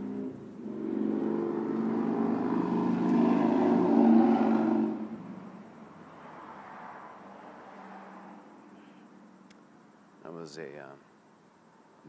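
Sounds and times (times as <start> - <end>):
motorcycle passing by: 0.0 - 5.4.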